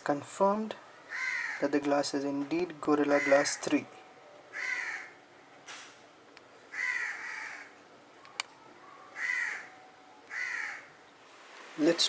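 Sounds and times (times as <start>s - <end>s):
crow cawing: 1.1s - 1.6s, 3.2s - 3.6s, 4.5s - 5.2s, 6.7s - 7.8s, 9.1s - 11.0s.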